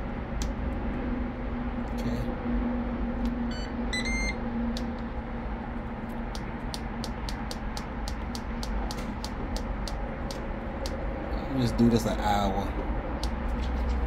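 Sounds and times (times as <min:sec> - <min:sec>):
steady low hum: 0:00.0 - 0:14.0
control panel beeping: 0:03.5 - 0:04.4.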